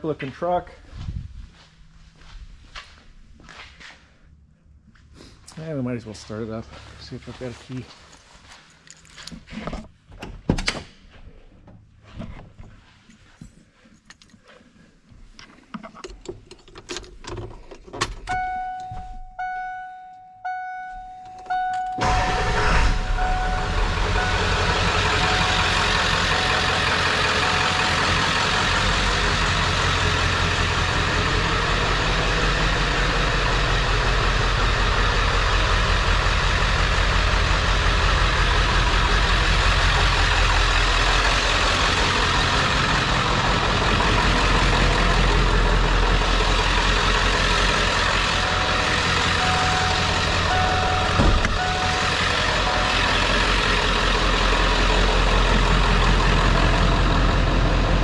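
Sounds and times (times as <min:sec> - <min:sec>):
diesel engine starting and idling: 0:18.2 - 0:58.0
dashboard warning chime beeping: 0:18.3 - 0:28.6, 0:47.7 - 0:54.0
car door clicks and thunks: 0:49.7 - 0:52.1.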